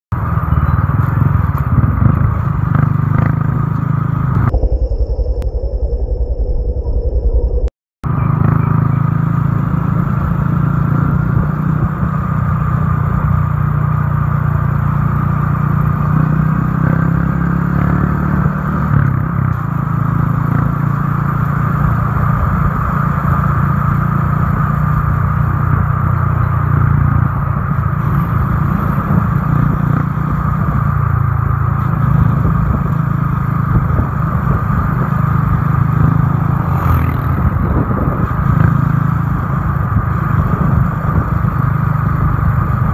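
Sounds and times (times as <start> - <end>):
motorcycle engine running: 0.1 - 6.4, 7.3 - 42.9
road noise: 0.1 - 42.9
wind noise: 4.3 - 8.8, 26.7 - 42.9.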